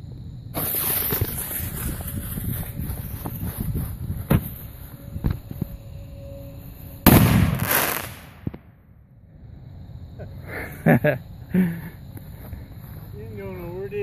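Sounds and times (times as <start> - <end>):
firework mortar blast: 0.5 - 2.8, 7.0 - 8.8.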